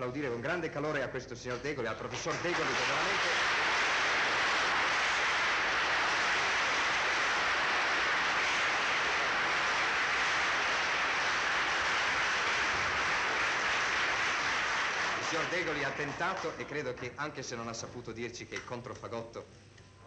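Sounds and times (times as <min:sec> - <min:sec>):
audience applauding: 0:02.1 - 0:17.1.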